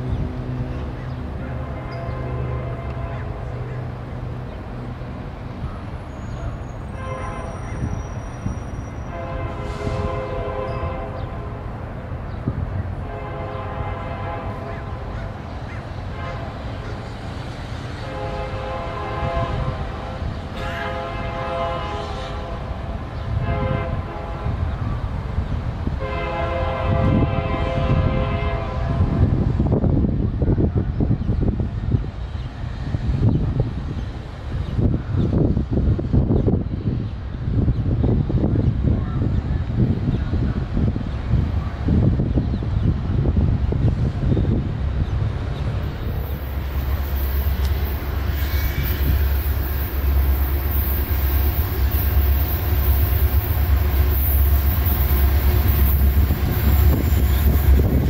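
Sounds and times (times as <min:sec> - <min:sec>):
low train rumble: 0:00.0 - 0:58.0
train horn blasts: 0:01.6 - 0:03.9, 0:06.0 - 0:11.8, 0:12.9 - 0:15.4, 0:16.0 - 0:17.0, 0:18.0 - 0:25.0, 0:25.9 - 0:29.4, 0:46.0 - 0:58.0.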